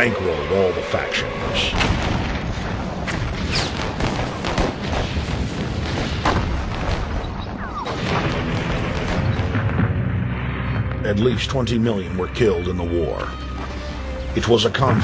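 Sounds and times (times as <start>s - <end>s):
artillery explosions: 1.7s - 11.7s
gunfire: 1.8s - 10.2s
low rumble: 6.6s - 12.4s.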